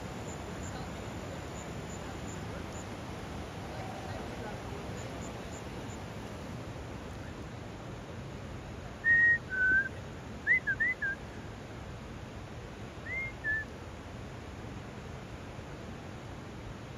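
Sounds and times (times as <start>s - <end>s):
river rushing: 0.0s - 16.9s
person whistling: 9.1s - 9.9s, 10.5s - 11.2s.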